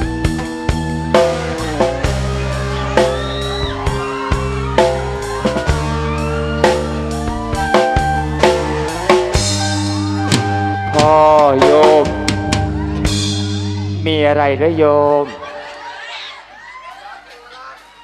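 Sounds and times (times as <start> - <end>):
electronic keyboard chords: 0.0 - 15.1
drum kit hits: 1.1 - 14.2.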